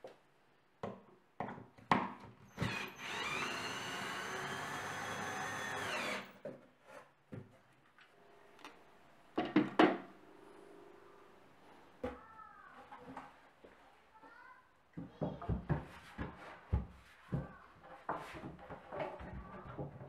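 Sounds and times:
drill click: 2.6s - 6.4s
drill motor whine: 2.6s - 6.4s.

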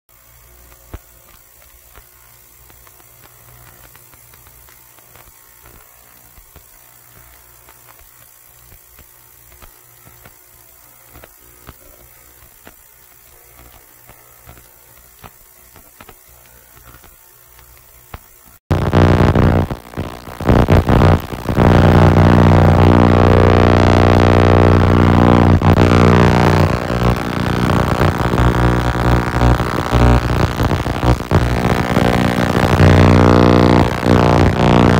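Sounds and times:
small scattered clicks: 0.3s - 18.6s
loud buzzing drone: 18.7s - 34.9s
ultrasonic cleaner humming: 18.7s - 34.9s.

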